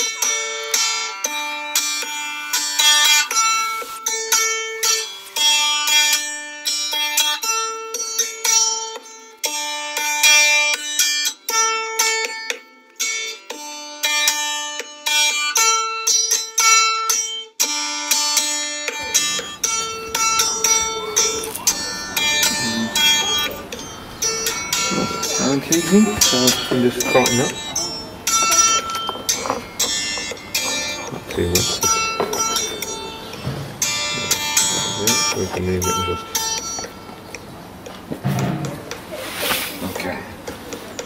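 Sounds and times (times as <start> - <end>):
plucked string instrument notes: 0.0 - 41.0
low even background noise: 18.9 - 41.0.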